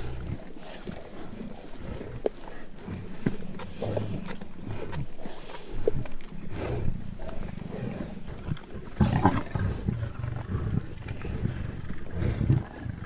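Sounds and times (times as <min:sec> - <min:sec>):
lions growling: 0:00.0 - 0:13.0.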